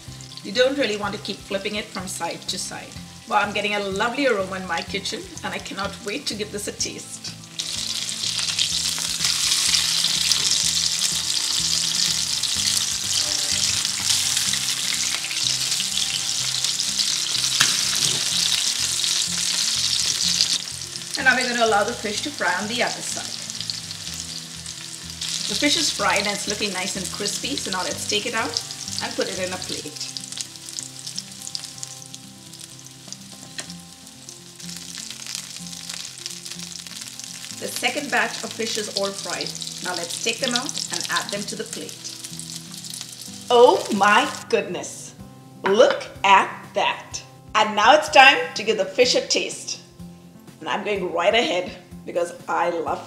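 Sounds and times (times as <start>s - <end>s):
fish sizzling in hot oil: 0.0s - 44.4s.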